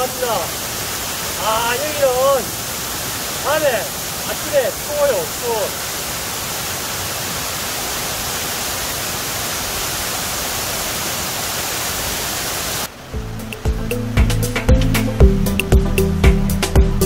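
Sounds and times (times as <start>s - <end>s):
waterfall rushing: 0.0s - 16.9s
background music with a beat: 13.2s - 17.0s.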